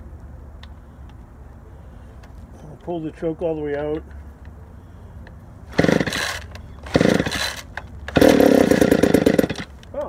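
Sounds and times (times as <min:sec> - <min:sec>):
chainsaw engine bursts: 0:05.7 - 0:09.8
starter cord pulls: 0:05.8 - 0:09.7.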